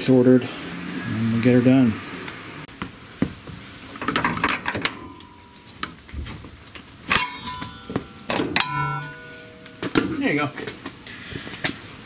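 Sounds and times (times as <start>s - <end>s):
hand tools clicking and clinking: 6.7s - 11.0s.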